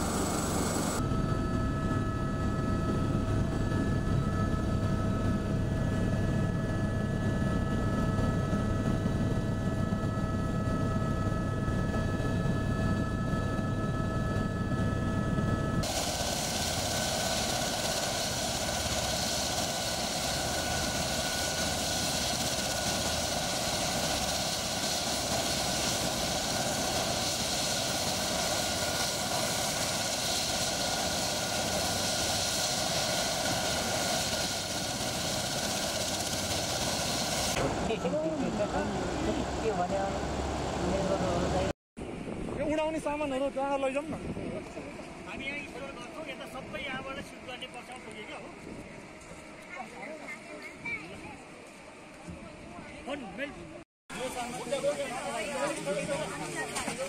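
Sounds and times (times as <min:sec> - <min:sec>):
helicopter rotors turning: 0:00.0 - 0:41.7
helicopter cabin rumble and whine: 0:00.0 - 0:41.8.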